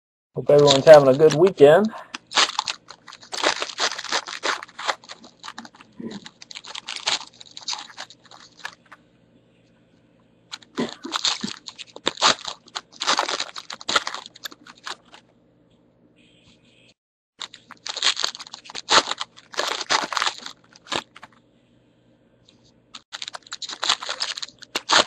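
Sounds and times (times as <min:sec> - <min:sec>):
card pack wrappers crinkling and tearing: 0:00.5 - 0:09.0, 0:10.5 - 0:15.2, 0:17.4 - 0:21.4, 0:23.0 - 0:25.0.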